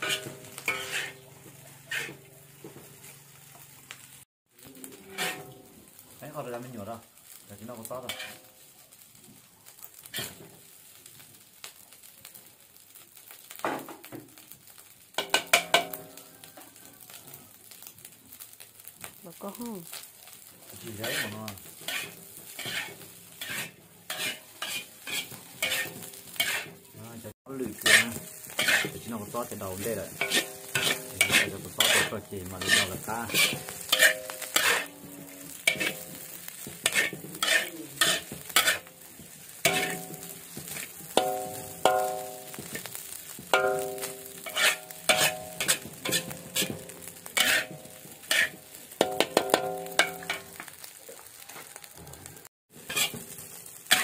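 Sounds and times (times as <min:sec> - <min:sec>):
metal spatula scraping wok: 0:00.0 - 0:03.4, 0:04.8 - 0:05.8, 0:07.8 - 0:08.7, 0:10.0 - 0:10.6, 0:20.3 - 0:51.4, 0:52.7 - 0:54.0
food sizzling: 0:00.0 - 0:54.0.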